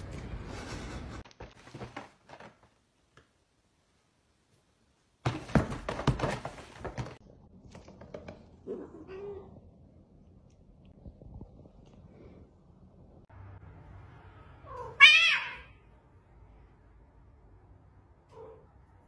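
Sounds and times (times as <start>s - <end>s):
cats scuffling thumps and scrabbling: 1.2s - 2.8s, 5.2s - 8.6s.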